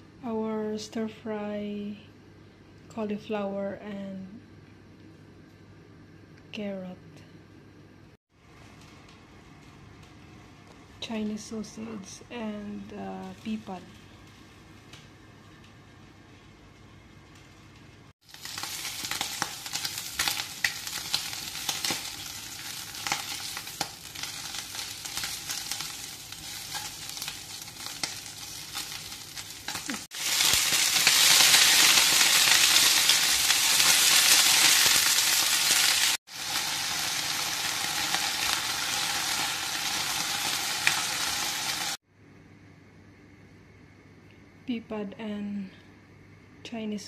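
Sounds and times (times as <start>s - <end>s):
sausage sizzling in a frying pan: 18.2s - 42.0s.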